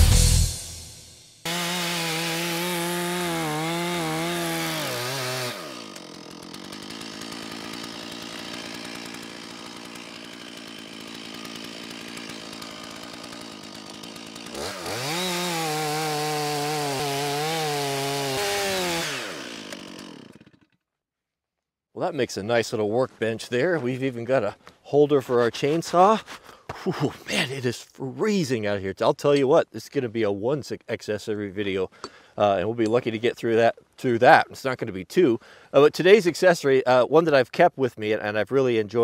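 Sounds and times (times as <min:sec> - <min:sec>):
chainsaw cutting log: 0:01.4 - 0:20.8.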